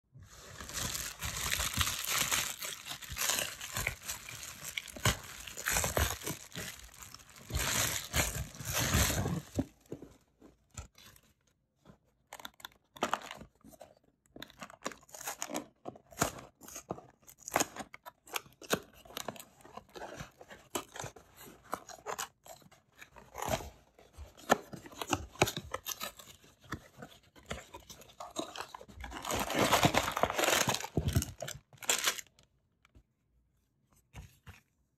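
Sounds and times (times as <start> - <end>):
cardboard box crunching and tearing: 0.3 - 9.8, 24.4 - 32.3.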